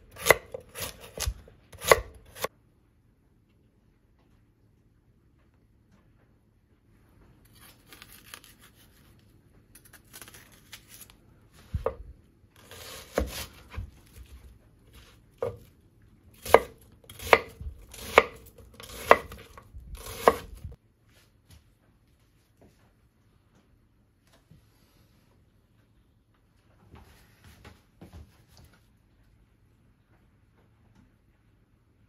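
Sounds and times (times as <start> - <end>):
knife chopping on wooden board: 0.1 - 2.5, 12.7 - 14.2, 16.4 - 20.8
onion crackling: 7.4 - 12.0, 16.3 - 20.8.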